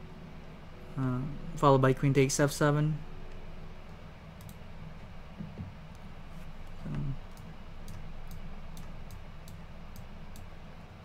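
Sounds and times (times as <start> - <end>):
low room hum: 0.0 - 11.0
low voice hum: 0.8 - 3.3, 6.5 - 7.5
computer mouse clicks: 4.4 - 4.6, 5.9 - 10.5.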